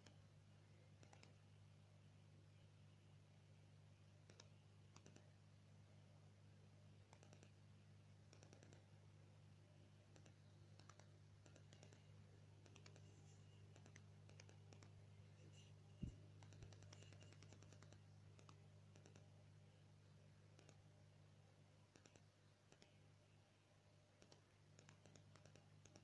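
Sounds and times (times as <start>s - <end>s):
faint low hum: 0.0s - 26.0s
faint clicks: 1.0s - 1.4s, 4.2s - 5.3s, 7.1s - 7.6s, 8.2s - 8.9s, 10.1s - 19.3s, 20.5s - 20.8s, 21.9s - 23.0s, 24.2s - 26.0s.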